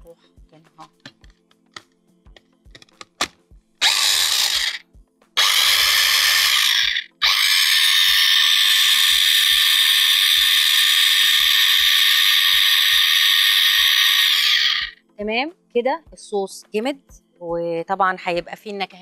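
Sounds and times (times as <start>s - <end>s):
mini chopper motor running: 3.8s - 4.8s, 5.4s - 15.0s.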